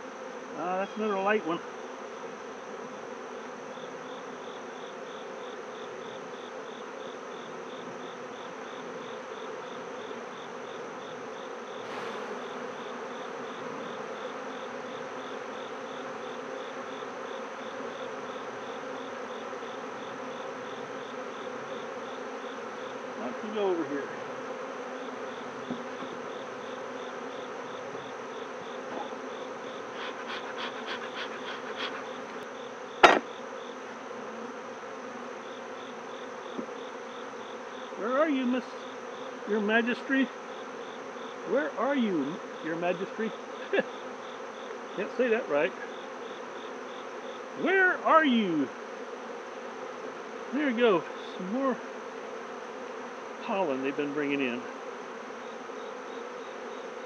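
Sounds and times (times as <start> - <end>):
bees buzzing: 0.0 - 57.0
sharp knock: 11.8 - 13.2.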